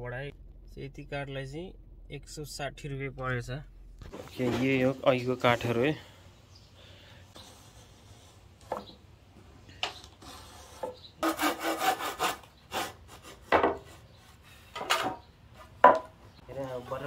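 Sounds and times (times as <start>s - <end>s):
wooden boards scraping: 9.9s - 17.0s.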